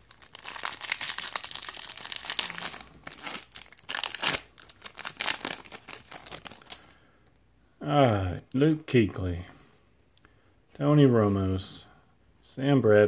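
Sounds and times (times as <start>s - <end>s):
foil wrapper crinkling and tearing: 0.0s - 6.9s.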